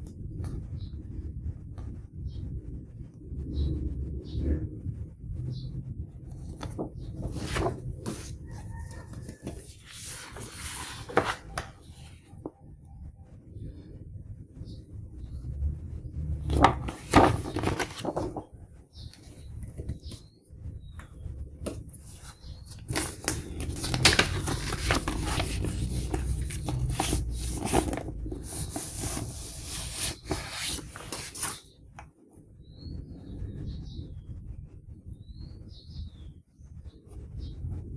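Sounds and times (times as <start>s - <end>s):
paper sleeves rustling: 6.3s - 12.5s, 16.5s - 18.5s, 21.6s - 31.7s.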